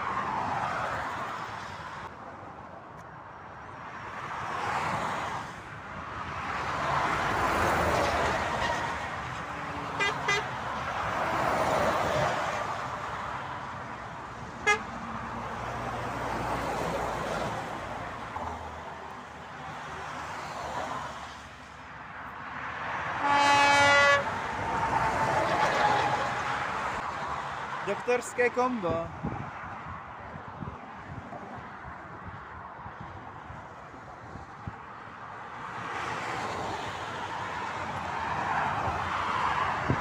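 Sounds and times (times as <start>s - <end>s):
motorway traffic passing: 0.0s - 40.0s
truck air horn: 8.5s - 9.0s, 9.9s - 10.6s, 14.6s - 14.9s, 23.2s - 24.3s.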